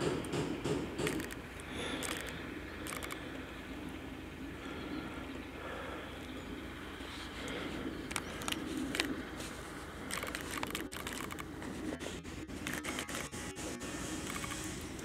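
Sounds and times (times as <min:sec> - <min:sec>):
quick clicking and rattling: 0:01.0 - 0:03.2, 0:10.1 - 0:11.5.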